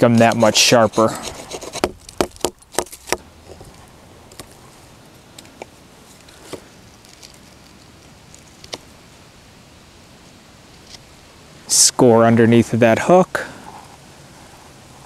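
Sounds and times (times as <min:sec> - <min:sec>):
knife cutting into wood: 0:00.0 - 0:03.2.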